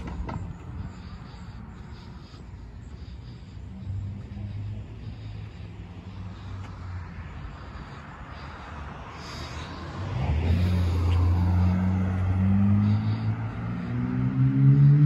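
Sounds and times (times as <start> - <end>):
car passing: 0.0 - 15.0.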